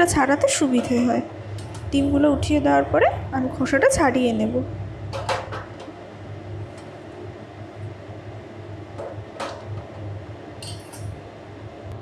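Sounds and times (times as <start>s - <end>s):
low background hum: 0.0s - 12.0s
spoon clinking steel bowl: 10.6s - 11.1s.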